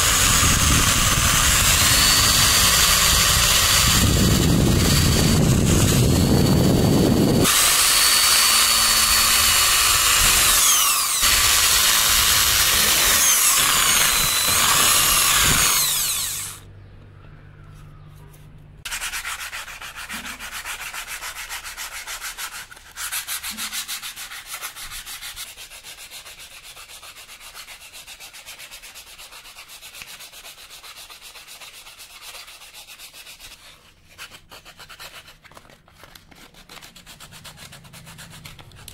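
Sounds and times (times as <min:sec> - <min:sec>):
hand sanding wood: 0:00.0 - 0:16.6, 0:18.9 - 0:38.9
power tool whining: 0:00.0 - 0:16.6.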